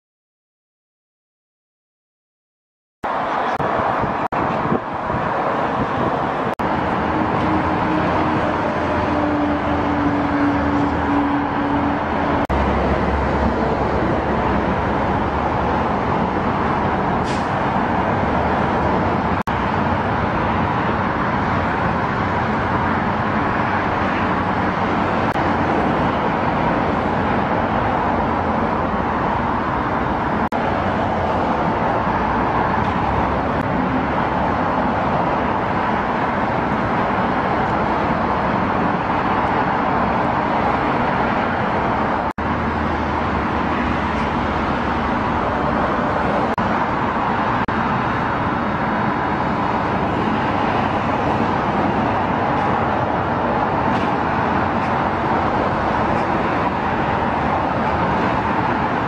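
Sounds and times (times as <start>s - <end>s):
road traffic hiss: 3.1s - 59.0s.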